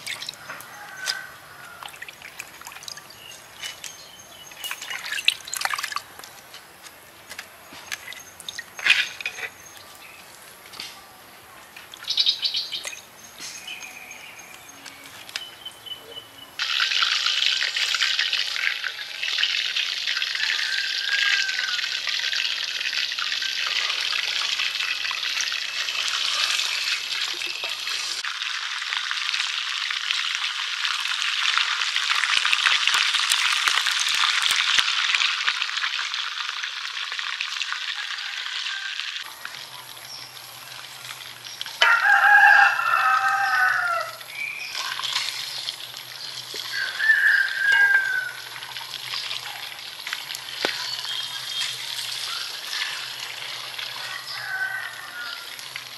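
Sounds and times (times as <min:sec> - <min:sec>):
fish sizzling in hot oil: 0:16.6 - 0:55.9.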